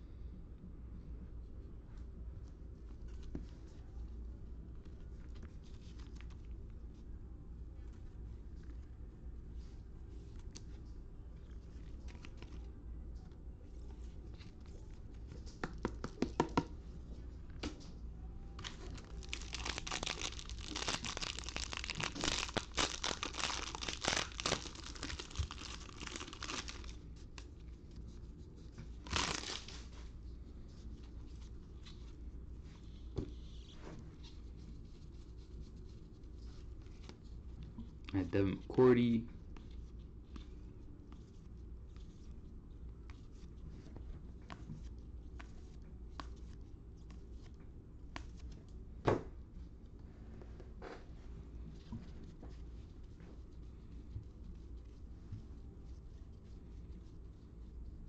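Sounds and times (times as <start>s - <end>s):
plastic wrapper being torn: 18.6s - 27.0s, 29.0s - 29.8s
plastic wrapper crinkling: 18.6s - 27.6s, 28.9s - 30.0s.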